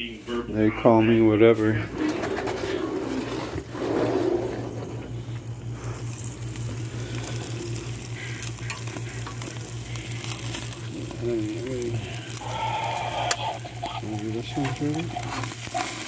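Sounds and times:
low steady hum: 0:00.0 - 0:16.0
patties sizzling on a grill: 0:03.8 - 0:16.0.

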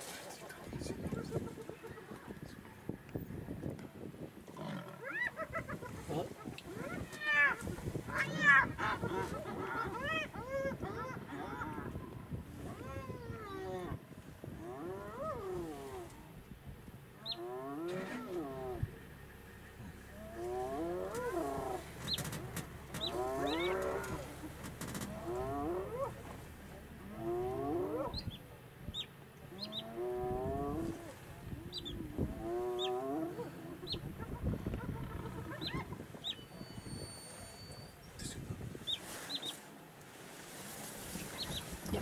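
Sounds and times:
drawn-out animal calls: 0:04.6 - 0:14.0, 0:17.2 - 0:39.4.

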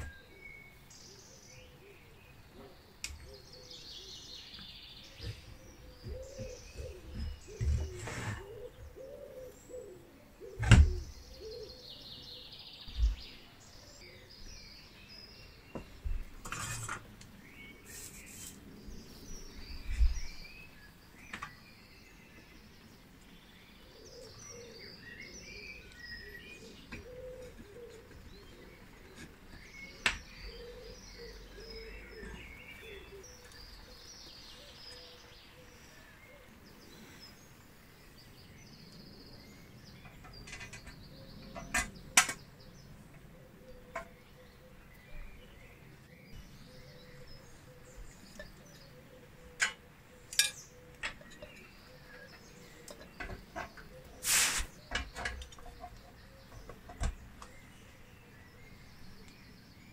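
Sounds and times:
faint bird chirping: 0:00.0 - 0:59.9
scrape on metal: 0:07.7 - 0:08.7, 0:16.4 - 0:17.1, 0:17.8 - 0:18.6, 0:54.2 - 0:54.8.

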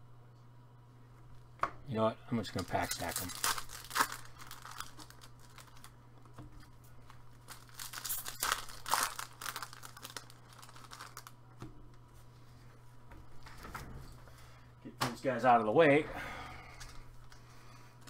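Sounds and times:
steady low hum: 0:00.0 - 0:18.0
foil wrappers crinkling: 0:02.5 - 0:06.0, 0:06.6 - 0:11.4.

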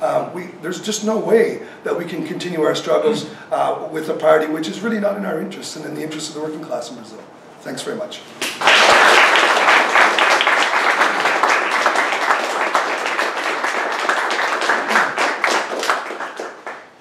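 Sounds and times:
audience applauding: 0:08.4 - 0:17.0.

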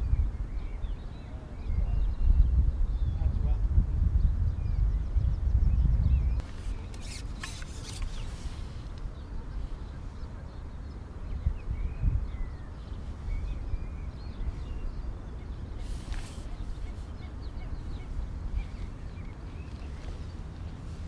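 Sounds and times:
wind on microphone: 0:00.0 - 0:21.0
distant bird calls: 0:04.3 - 0:21.0.

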